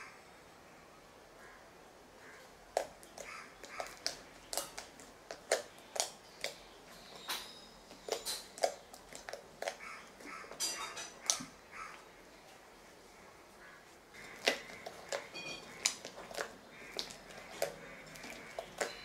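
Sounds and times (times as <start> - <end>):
slime clicking and squelching: 2.7 - 10.6, 14.1 - 19.0.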